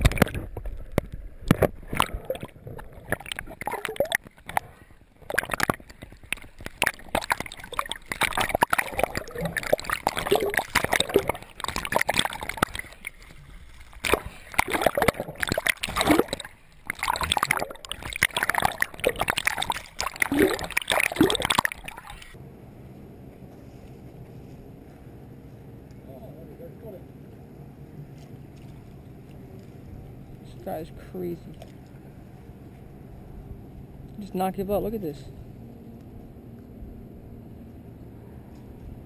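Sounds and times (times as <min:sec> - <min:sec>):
splashes and bubbling pops: 0:00.0 - 0:22.4
water sloshing and gurgling: 0:00.0 - 0:22.4, 0:28.1 - 0:34.0.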